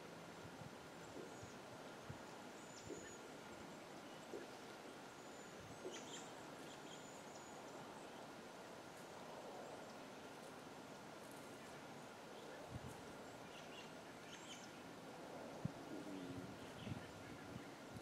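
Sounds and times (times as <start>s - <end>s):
faint steady hiss: 0.0s - 18.0s
faint high bird chirps: 2.6s - 3.3s.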